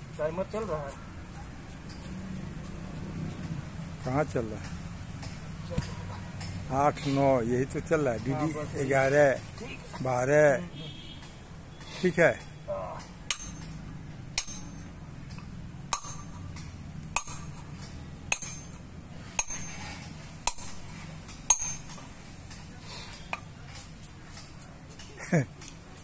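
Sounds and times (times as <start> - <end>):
hammer tapping stone: 14.4 - 18.8.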